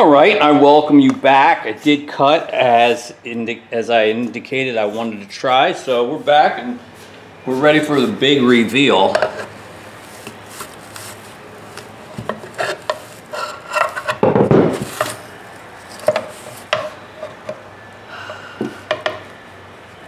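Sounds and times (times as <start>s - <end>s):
loud metal rasp: 12.4s - 14.2s
screwdriver scraping metal: 12.4s - 14.2s.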